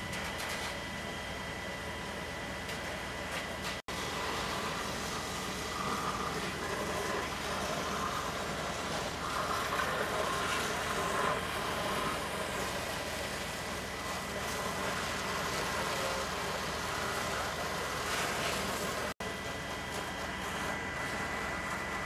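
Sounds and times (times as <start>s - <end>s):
fire engine pump droning: 0.0s - 22.0s.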